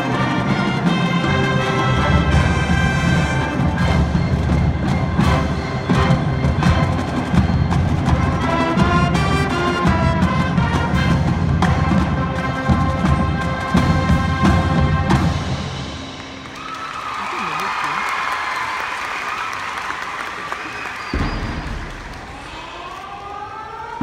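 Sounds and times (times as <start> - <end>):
drum strokes: 0.0 - 16.4
marching band playing: 0.0 - 19.2.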